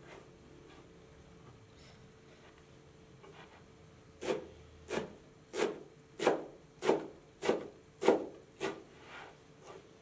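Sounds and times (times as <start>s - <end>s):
knife chopping herbs on wood: 4.2s - 8.9s.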